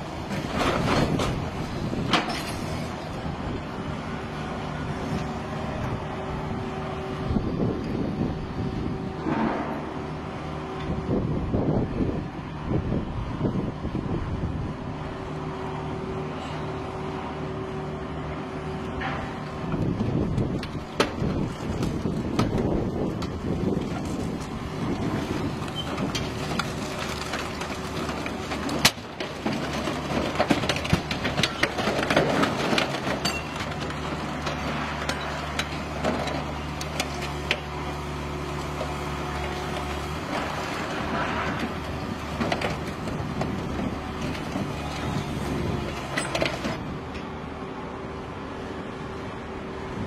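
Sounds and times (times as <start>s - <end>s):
engine and hydraulics running: 0.0s - 50.0s
car body crunching and cracking: 20.1s - 37.7s.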